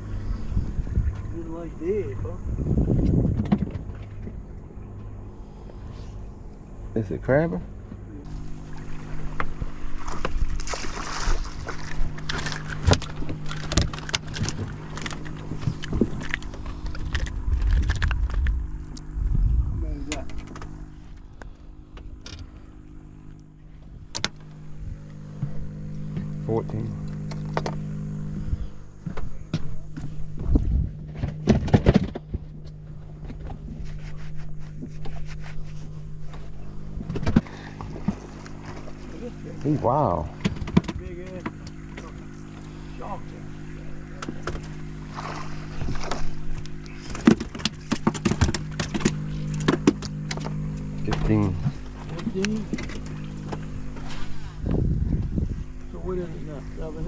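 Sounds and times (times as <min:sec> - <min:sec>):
motor hum: 0:00.0 - 0:57.0
knocks on fiberglass boat: 0:02.9 - 0:04.4, 0:40.4 - 0:41.6
fish splashing at surface: 0:09.9 - 0:15.2, 0:44.9 - 0:49.8
fish thumping on deck: 0:44.2 - 0:50.6.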